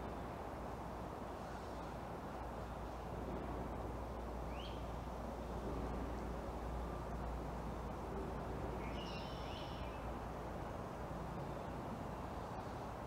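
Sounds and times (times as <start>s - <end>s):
low outdoor rumble: 0.0s - 13.0s
small birds chirping: 4.5s - 4.9s, 8.7s - 10.2s.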